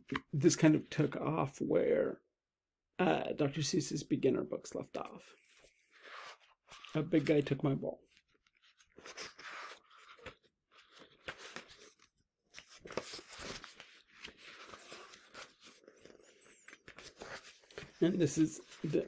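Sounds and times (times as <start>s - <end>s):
book pages rustling: 5.4s - 19.0s.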